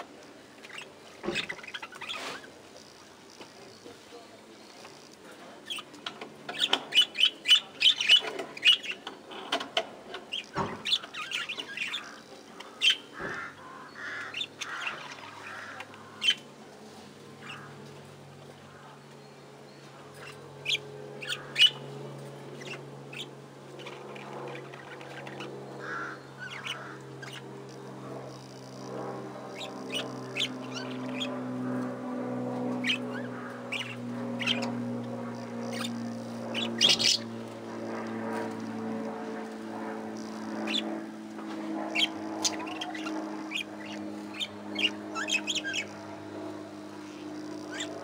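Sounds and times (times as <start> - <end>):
budgerigars chirping and chattering: 0.6 - 2.5, 5.6 - 16.5, 17.4 - 17.7, 20.1 - 21.9, 22.5 - 28.8, 29.4 - 31.4, 32.7 - 34.8, 35.4 - 37.3, 40.2 - 40.9, 41.9 - 46.0, 47.0 - 48.0.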